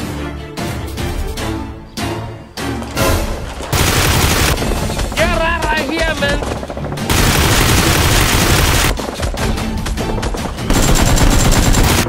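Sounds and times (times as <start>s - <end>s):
action background music: 0.0s - 12.0s
rapid gunfire: 3.6s - 12.0s.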